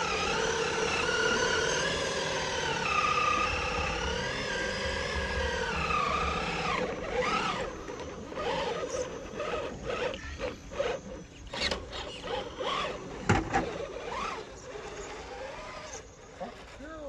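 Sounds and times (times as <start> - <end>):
electric motor and drivetrain whining: 0.0 - 17.0
truck knocking onto rock: 13.2 - 13.9.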